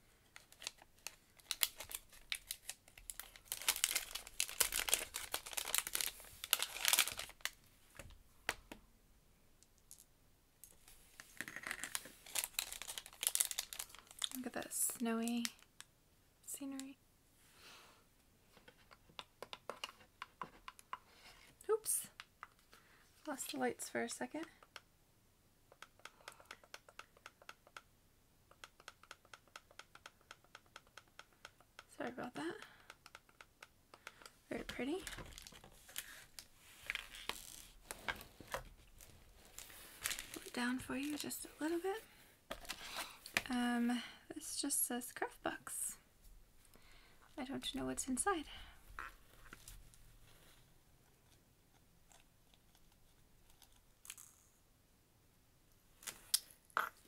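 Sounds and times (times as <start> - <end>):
packaging crinkling and rustling: 0.2 - 7.6, 10.7 - 15.7, 34.7 - 41.8.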